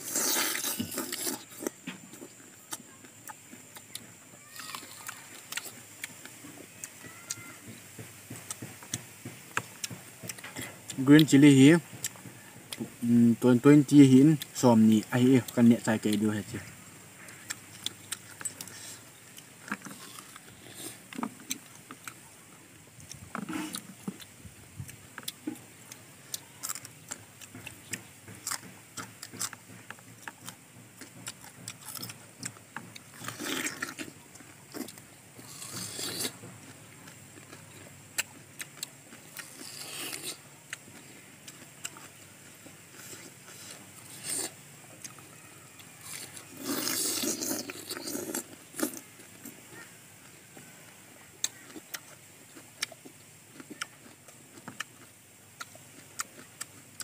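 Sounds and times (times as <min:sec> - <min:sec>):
short crunchy bursts: 0:00.0 - 0:02.4, 0:26.4 - 0:36.9, 0:37.5 - 0:49.9
crisp bites and chewing: 0:00.0 - 0:07.5, 0:17.2 - 0:22.2, 0:25.1 - 0:49.6.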